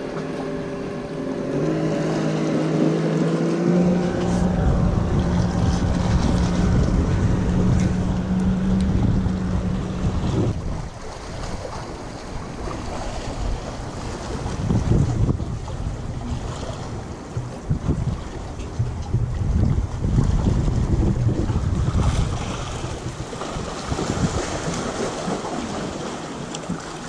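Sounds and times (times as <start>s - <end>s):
motorboat engine humming: 0.0s - 27.0s
water noise: 0.0s - 27.0s
wind buffeting microphone: 0.0s - 27.0s.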